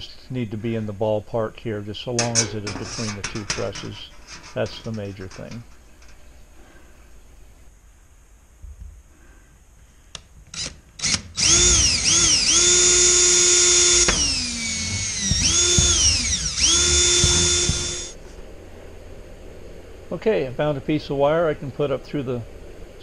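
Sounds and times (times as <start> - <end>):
power drill whining: 10.5 - 18.2.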